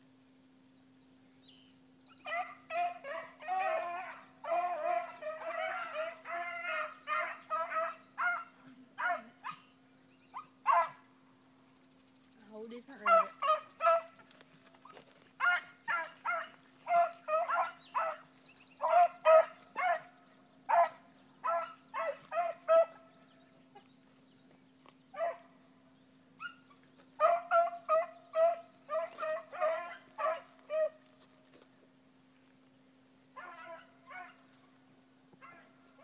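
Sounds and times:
dogs baying: 13.1s - 23.9s, 26.4s - 31.2s.

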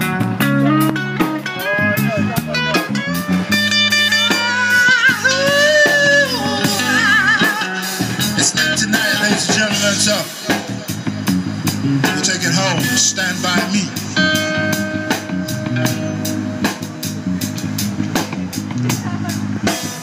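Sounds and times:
bass line: 0.0s - 20.0s
drum kit: 0.0s - 20.0s
electric guitar lead: 0.0s - 20.0s.

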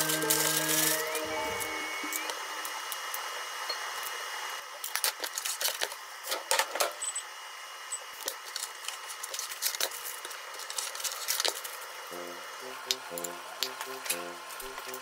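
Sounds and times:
brief high tones: 0.0s - 2.6s.

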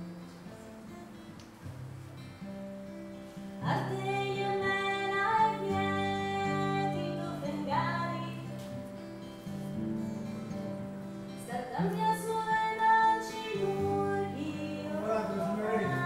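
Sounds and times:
strummed acoustic guitar: 0.0s - 16.0s
woman singing: 3.6s - 8.8s, 11.4s - 16.0s.

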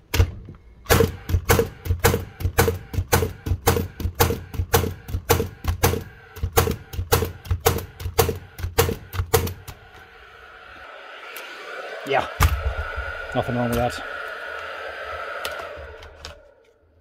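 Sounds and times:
nail gun firing: 0.9s - 9.7s
faint steady hum: 9.6s - 17.0s.

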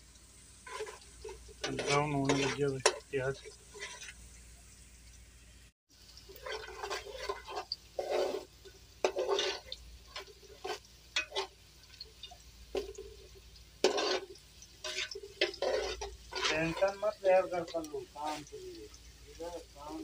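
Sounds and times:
onions frying in oil: 0.0s - 20.0s
metal ladle scraping a pot: 0.6s - 4.2s, 6.3s - 11.6s, 13.8s - 18.5s.

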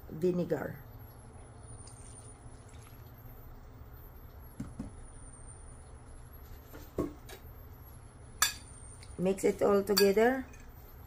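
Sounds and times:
low background hum: 0.0s - 11.0s
dishes knocking on table: 4.6s - 5.0s.

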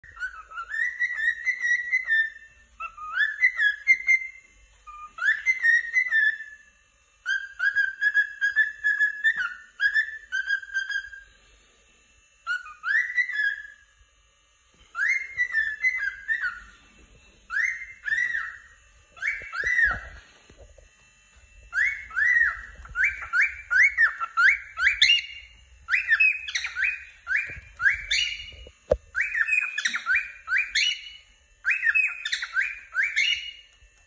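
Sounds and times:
cockatiel whistling and chirping: 0.0s - 6.6s, 7.2s - 11.3s, 12.4s - 13.9s, 14.8s - 20.5s, 21.7s - 34.0s.

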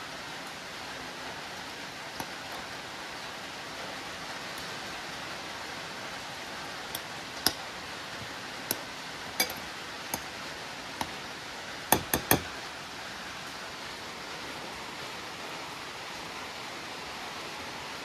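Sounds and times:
steady hiss: 0.0s - 18.0s
metal tongs clinking on ceramic bowl: 9.4s - 10.3s.

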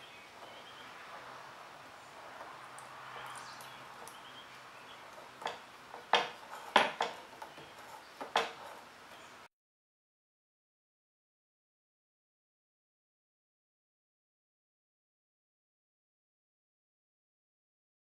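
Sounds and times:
sharp clicks and knocks: 5.1s - 8.8s.

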